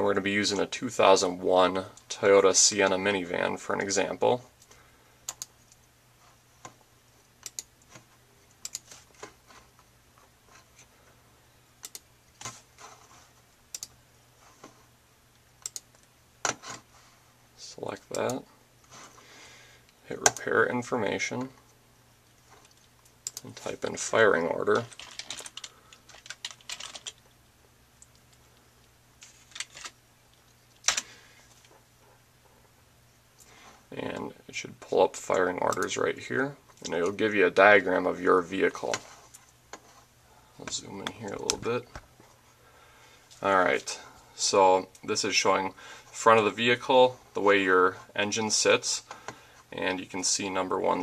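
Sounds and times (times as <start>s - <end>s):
computer mouse clicks: 4.6s - 5.8s, 7.4s - 8.9s, 11.8s - 12.1s, 13.7s - 14.0s, 15.6s - 16.6s, 22.6s - 23.5s
keyboard typing: 5.2s - 5.8s, 7.4s - 9.0s, 11.8s - 12.4s, 13.7s - 14.0s, 15.6s - 16.8s, 22.6s - 23.5s, 24.7s - 27.4s.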